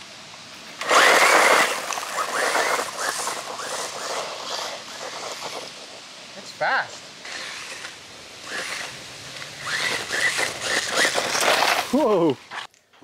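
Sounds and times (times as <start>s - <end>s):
tyres spraying gravel: 0.0s - 12.7s
electric motor whine: 7.2s - 12.6s.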